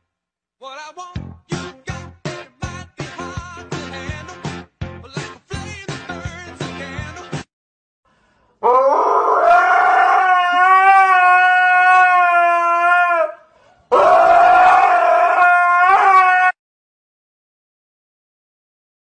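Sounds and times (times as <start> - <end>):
dog howling: 8.6 - 16.6.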